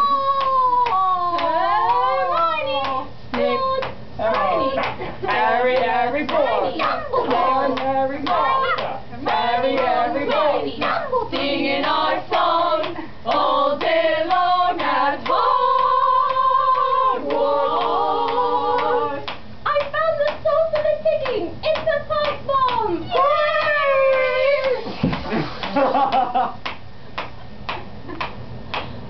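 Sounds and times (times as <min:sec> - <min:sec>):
young voices singing a cappella: 0:00.0 - 0:19.3.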